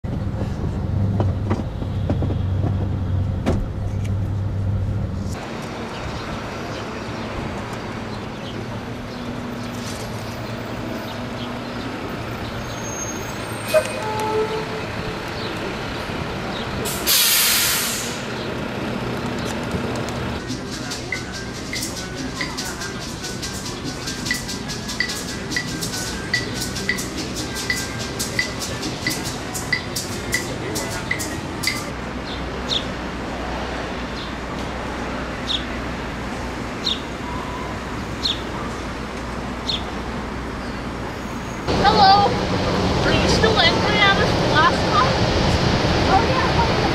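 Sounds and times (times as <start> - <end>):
street traffic noise: 0.0 - 46.9
background rush of noise: 4.6 - 46.9
air brakes hissing: 16.8 - 18.3
sparrow chirping: 38.2 - 38.5.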